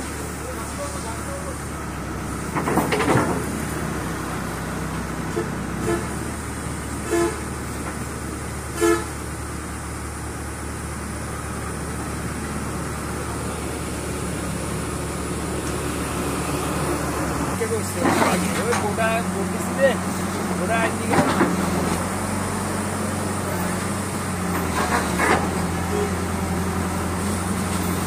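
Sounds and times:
diesel engine idling: 0.0s - 28.0s
horn toots: 5.3s - 6.2s, 7.0s - 7.5s, 8.7s - 9.2s.

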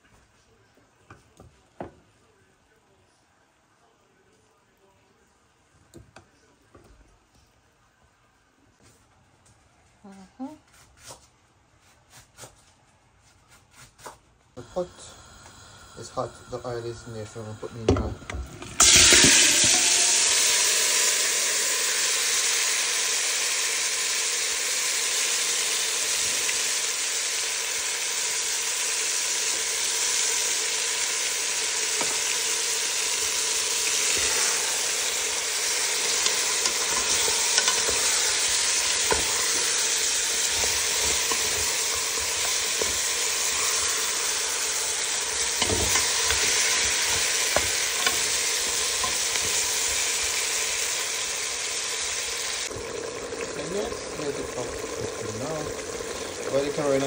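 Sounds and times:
meat sizzling in hot oil: 14.6s - 57.0s.

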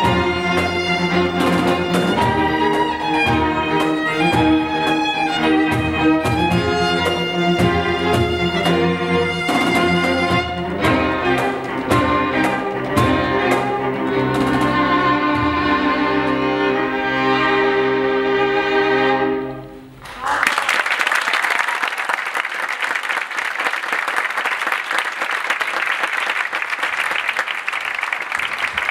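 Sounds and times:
string ensemble chord: 0.0s - 19.9s
audience applause: 20.0s - 28.9s.

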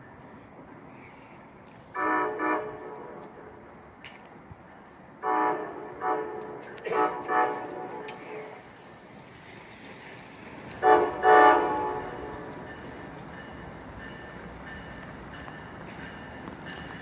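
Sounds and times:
train rumble: 0.0s - 17.0s
train horn blasts: 1.9s - 3.6s, 5.2s - 8.7s, 10.8s - 12.7s.

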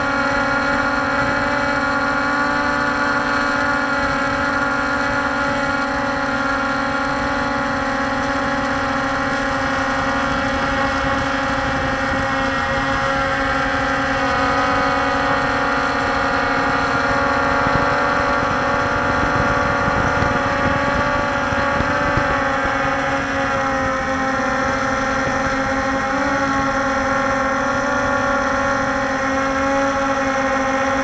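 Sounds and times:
quadcopter motors humming: 0.0s - 31.0s
rushing air noise: 6.2s - 31.0s.

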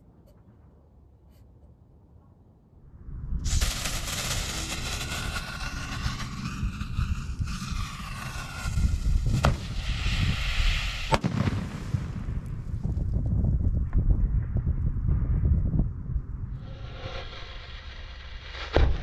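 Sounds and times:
firework shell exploding: 3.4s - 13.0s
steady hiss: 3.5s - 11.3s.

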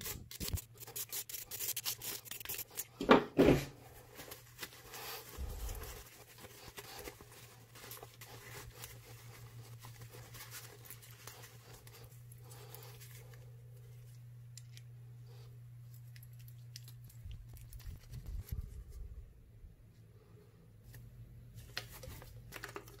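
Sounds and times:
steady low hum: 0.0s - 22.4s
paper towel rustling: 3.8s - 14.2s.

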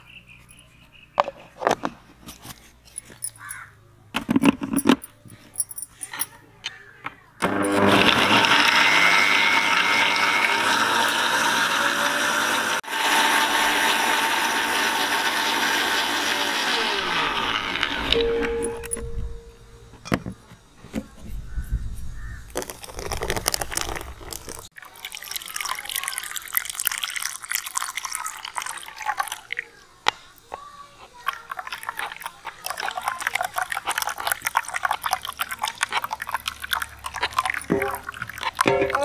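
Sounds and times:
juice trickling through sieve: 22.2s - 39.0s.

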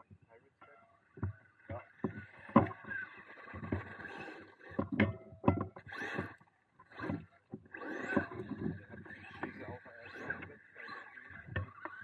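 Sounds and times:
toy truck motor whine: 2.2s - 4.8s, 5.8s - 12.0s.

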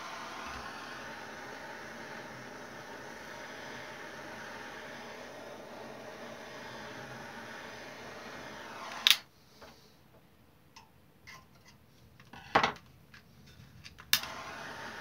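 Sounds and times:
gas torch hissing: 0.0s - 9.3s, 14.1s - 15.0s.

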